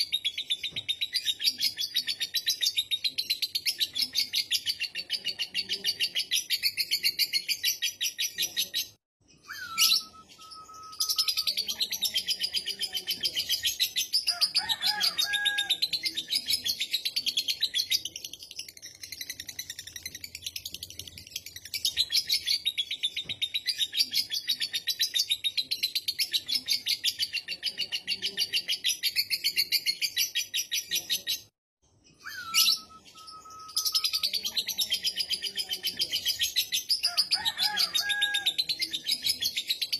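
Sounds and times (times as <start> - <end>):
bird whistled note: 9.5 - 11.0, 32.2 - 33.8.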